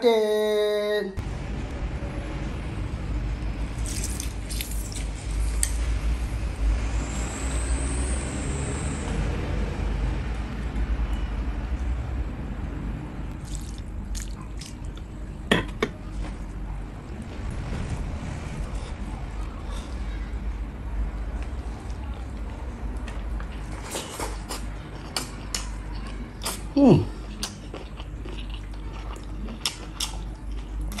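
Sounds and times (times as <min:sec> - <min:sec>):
steady low rumble: 0:01.2 - 0:07.5, 0:09.6 - 0:23.8
wet squishing of food by hand: 0:13.3 - 0:15.2.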